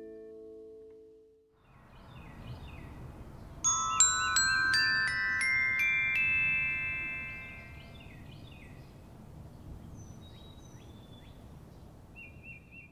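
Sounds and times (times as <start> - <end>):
bell-like chime notes: 3.7 - 8.0.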